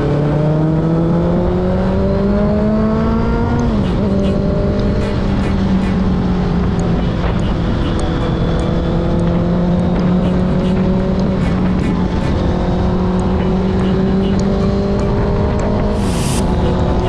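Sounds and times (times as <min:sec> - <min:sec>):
constant rushing noise: 0:01.4 - 0:17.0
motorcycle engine running: 0:03.4 - 0:17.0.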